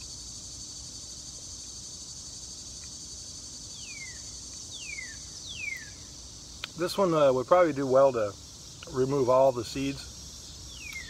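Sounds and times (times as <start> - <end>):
insect chorus: 0.0 - 11.0
bird whistling descending notes: 3.8 - 6.0.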